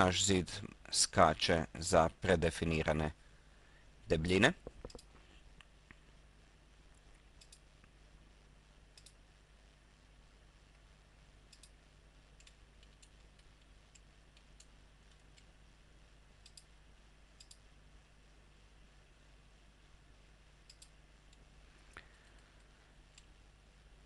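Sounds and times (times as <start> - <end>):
low steady hum: 0.0 - 24.0
computer mouse clicks: 4.7 - 5.2, 7.4 - 7.7, 8.9 - 9.2, 11.5 - 11.8, 12.4 - 15.5, 16.4 - 16.7, 17.4 - 17.6, 20.6 - 21.4.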